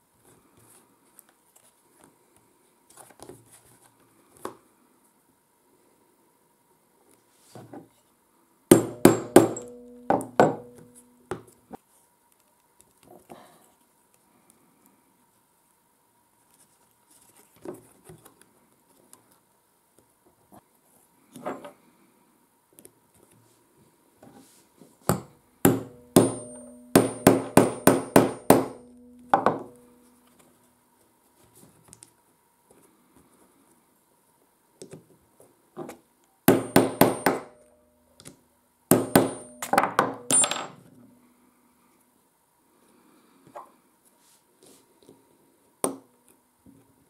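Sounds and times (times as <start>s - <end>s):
hammer striking metal punch: 8.7s - 11.0s, 25.1s - 30.0s, 36.5s - 37.8s, 38.9s - 40.6s.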